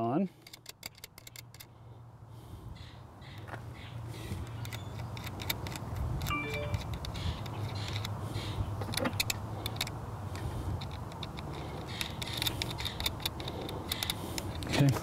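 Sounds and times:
small metal clicks and ticks: 0.4s - 1.7s, 4.5s - 8.2s, 8.9s - 15.0s.

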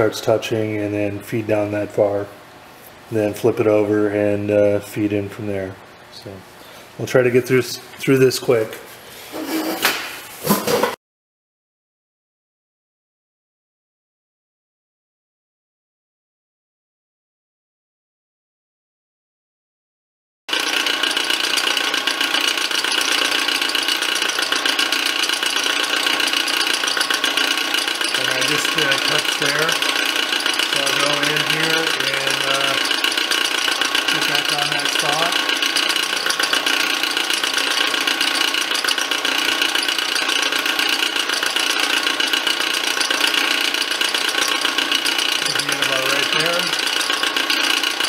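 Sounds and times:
milling machine running: 20.5s - 48.0s.

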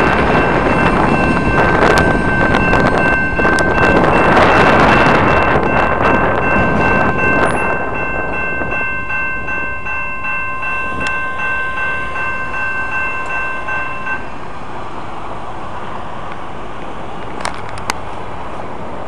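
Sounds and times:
crossing signal bell ringing: 0.0s - 14.4s
freight cars rumbling past: 0.0s - 19.0s.

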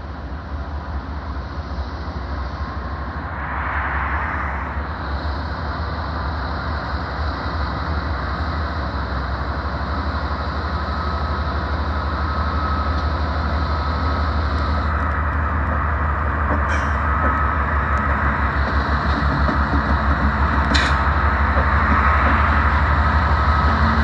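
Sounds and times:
diesel locomotive engines rumbling: 0.0s - 24.0s
thin steady whine: 0.4s - 16.4s.

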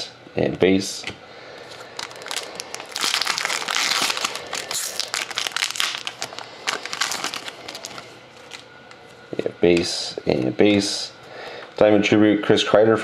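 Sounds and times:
wrapper crinkling being torn: 1.7s - 9.0s.

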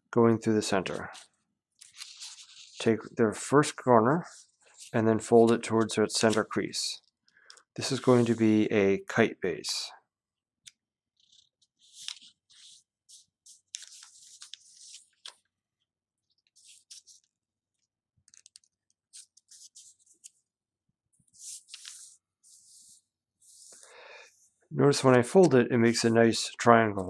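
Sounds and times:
paper rustling and crinkling: 0.9s - 2.9s, 11.2s - 15.5s, 16.3s - 17.4s, 18.2s - 20.5s, 21.3s - 23.8s.

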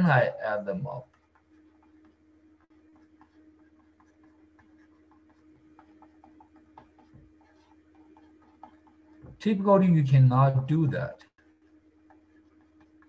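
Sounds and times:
faint electrical hum: 0.0s - 13.0s
stylus tapping on a screen: 0.9s - 9.5s.

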